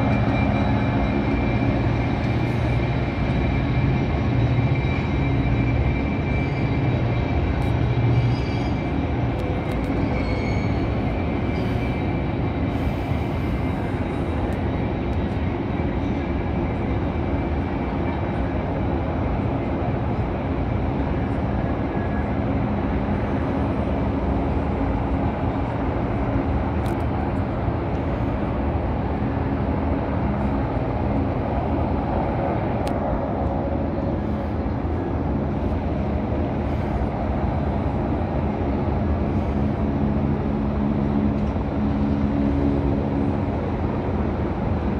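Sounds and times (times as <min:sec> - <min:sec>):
city traffic noise: 0:00.0 - 0:44.9
distant helicopters rumbling: 0:00.0 - 0:44.9.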